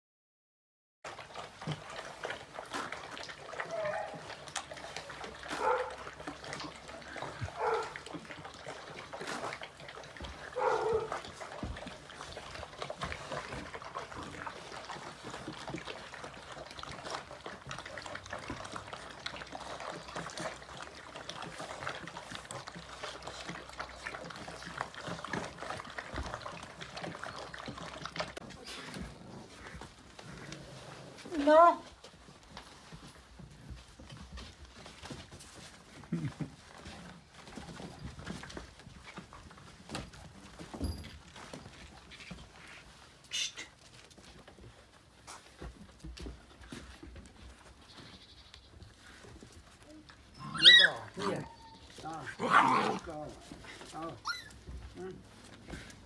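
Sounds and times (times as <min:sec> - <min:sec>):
puppies lapping and chewing: 0:01.1 - 0:56.0
puppy whines: 0:03.6 - 0:04.2, 0:49.9 - 0:53.0, 0:54.2 - 0:54.8.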